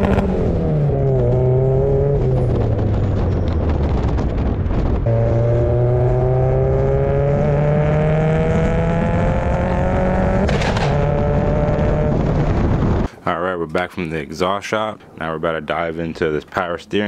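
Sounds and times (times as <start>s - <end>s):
car engine and exhaust: 0.0s - 13.1s.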